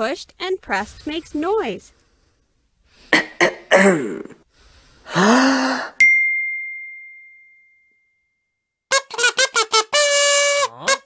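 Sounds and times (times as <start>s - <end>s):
bright ding: 6.0s - 8.4s.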